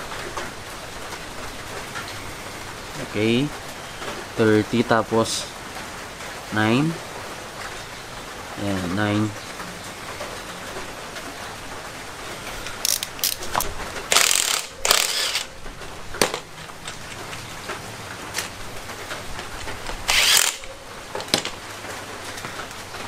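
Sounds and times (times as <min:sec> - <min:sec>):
torque wrench ratcheting: 0:12.8 - 0:13.4, 0:14.1 - 0:15.5, 0:20.1 - 0:20.7.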